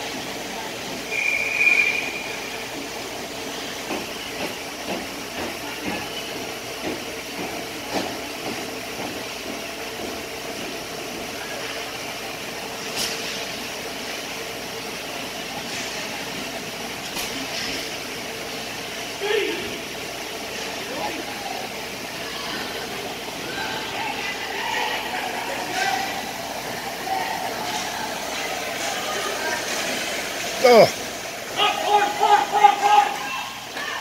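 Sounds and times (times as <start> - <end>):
referee's whistle blast: 1.1 - 2.4.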